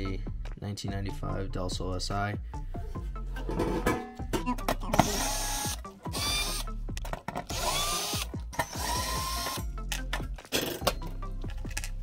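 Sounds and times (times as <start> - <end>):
cordless drill whining: 5.0 - 6.7, 7.5 - 9.6.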